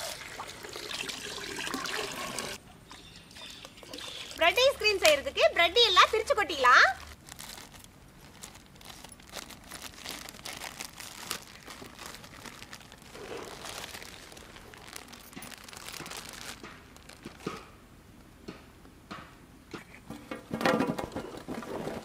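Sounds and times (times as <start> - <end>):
plastic bread bags crinkling: 4.3 - 17.7.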